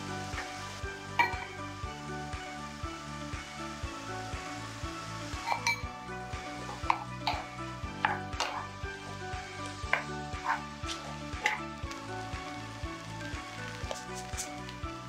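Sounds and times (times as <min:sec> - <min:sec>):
food sizzling in a pan: 0:00.0 - 0:15.0
wooden spatula scraping a pan: 0:06.6 - 0:11.8, 0:13.7 - 0:14.7.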